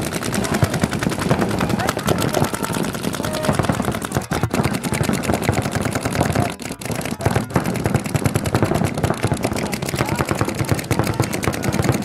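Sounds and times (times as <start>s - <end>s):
paintball markers firing: 0.0s - 12.0s.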